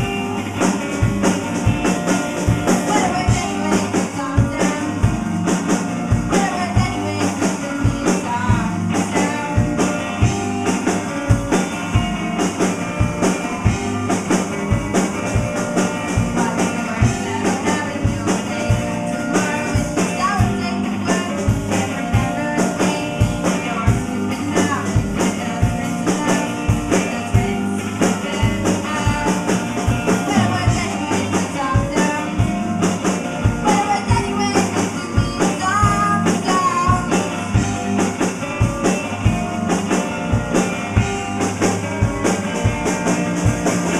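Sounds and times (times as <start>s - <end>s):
drum beat: 0.0s - 43.9s
electric guitar: 0.0s - 43.9s
person singing: 2.7s - 5.3s, 6.2s - 10.2s, 15.9s - 32.8s, 33.4s - 37.6s.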